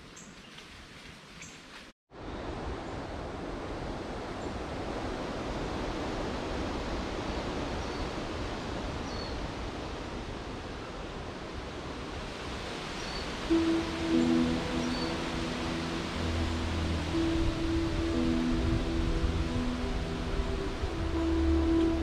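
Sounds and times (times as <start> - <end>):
rushing wind: 2.1 - 22.0
music: 13.5 - 22.0.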